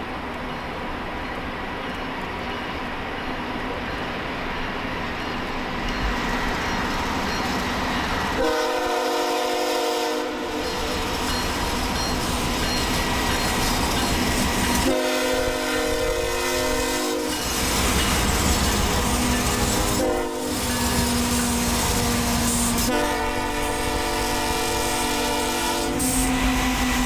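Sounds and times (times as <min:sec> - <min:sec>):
train rumble: 0:00.0 - 0:27.0
locomotive air horn blasts: 0:08.4 - 0:11.1, 0:14.8 - 0:17.4, 0:19.7 - 0:20.6, 0:22.7 - 0:27.0.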